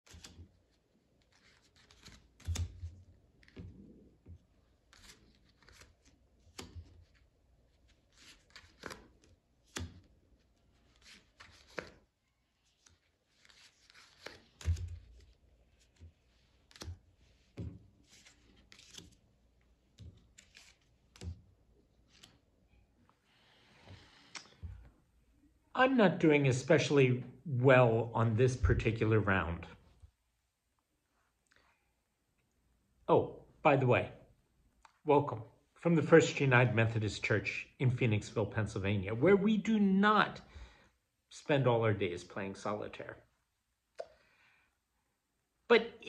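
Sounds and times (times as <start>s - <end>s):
playing cards snapping: 8.3s - 10.1s, 11.0s - 12.0s, 13.4s - 15.3s, 16.6s - 17.0s, 17.6s - 19.2s, 19.9s - 21.4s, 24.1s - 24.6s.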